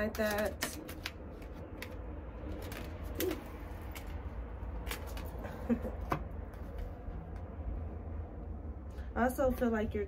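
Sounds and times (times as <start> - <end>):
cards clicking and tapping: 0.0 - 5.4
low rumble of traffic: 0.0 - 10.0.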